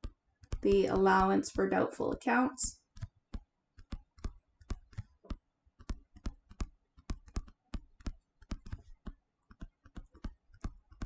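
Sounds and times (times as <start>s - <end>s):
stylus clicking on tablet screen: 2.8s - 11.0s.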